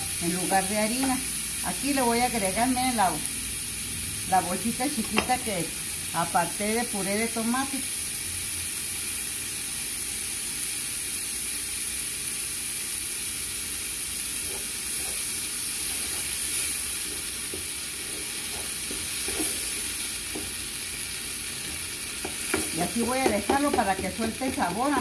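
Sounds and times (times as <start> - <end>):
sauce sizzling in a frying pan: 0.0 - 25.0
spoon scraping a pan: 14.4 - 20.5, 21.6 - 25.0.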